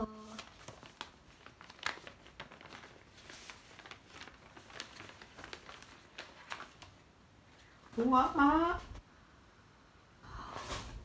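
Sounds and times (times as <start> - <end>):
wrapping paper crinkling: 0.2 - 7.8.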